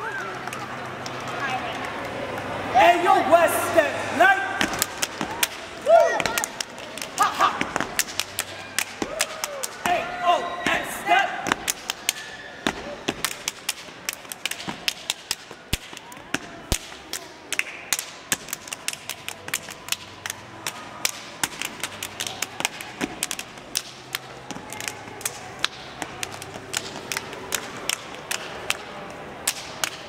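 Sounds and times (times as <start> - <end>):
shoes stamping on stone floor: 4.6 - 5.4
hand claps and body slaps: 4.6 - 10.0, 11.5 - 30.0.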